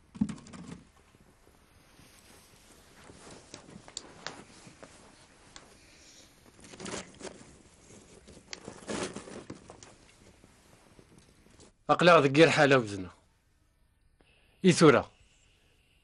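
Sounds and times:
scraping and rustling: 0:01.9 - 0:11.7.

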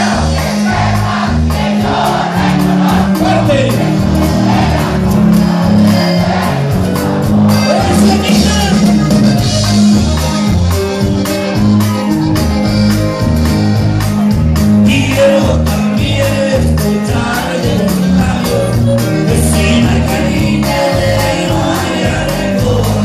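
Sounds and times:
button accordion: 0:00.0 - 0:23.0
drum kit: 0:00.0 - 0:23.0
electric bass: 0:00.0 - 0:23.0
twelve-string guitar: 0:00.0 - 0:23.0
man singing: 0:07.6 - 0:09.2, 0:14.8 - 0:23.0.

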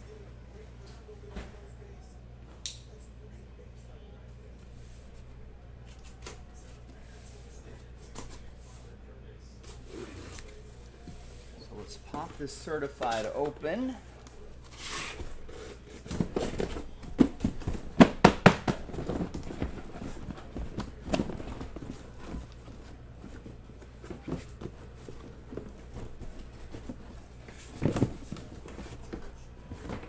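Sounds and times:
cardboard rustling and scraping: 0:09.6 - 0:30.0.

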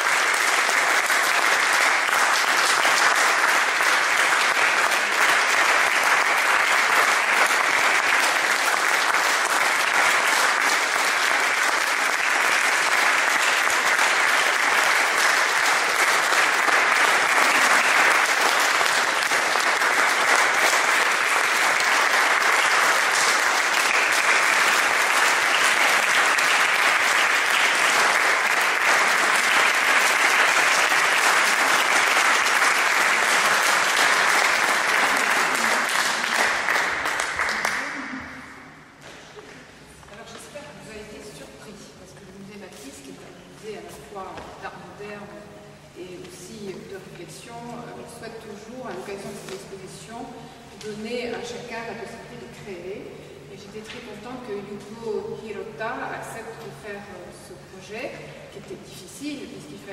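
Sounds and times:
audience applauding: 0:00.0 - 0:38.7.

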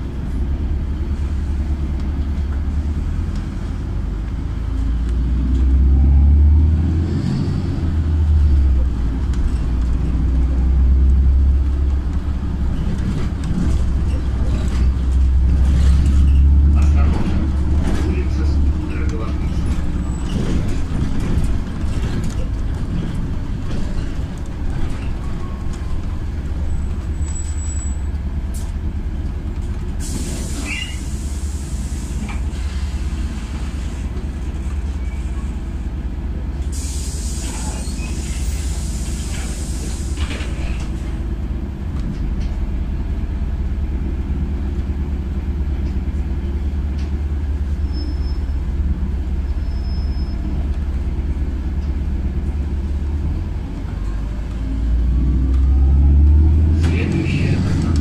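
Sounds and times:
bus engine and road rumble: 0:00.0 - 0:58.0
air hissing: 0:36.7 - 0:40.4.

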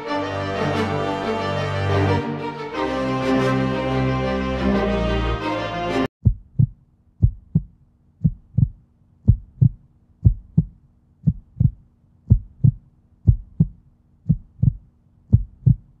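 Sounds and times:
heartbeat-like double thump: 0:06.2 - 0:16.0.

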